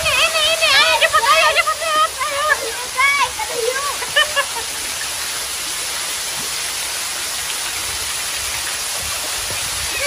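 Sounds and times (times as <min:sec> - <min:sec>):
rain on pool surface: 0:00.0 - 0:10.0.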